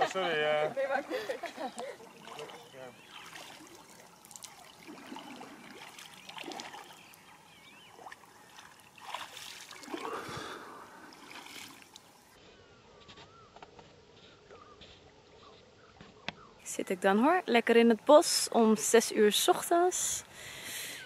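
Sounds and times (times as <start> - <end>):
water sloshing around wading legs: 0.6 - 12.4.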